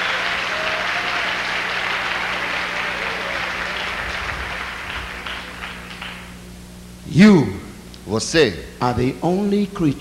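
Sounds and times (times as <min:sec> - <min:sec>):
crowd applauding: 0:00.0 - 0:06.4.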